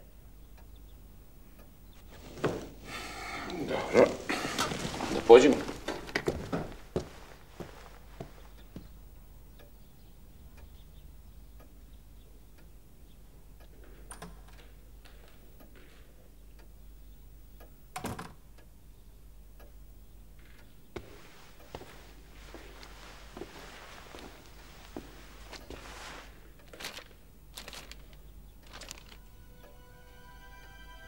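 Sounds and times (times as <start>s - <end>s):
clock ticking: 19.4s - 20.9s.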